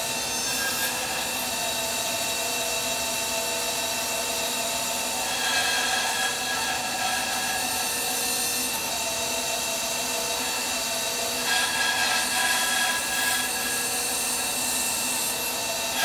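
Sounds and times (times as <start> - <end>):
bandsaw cutting wood: 0.0 - 16.0.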